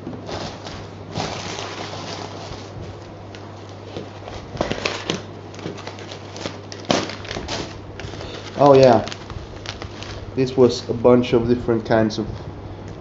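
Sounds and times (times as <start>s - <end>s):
packing crackles and knocks: 0.0s - 10.3s
cardboard flaps scraping and rustling: 0.0s - 10.7s
steady low hum: 0.0s - 13.0s.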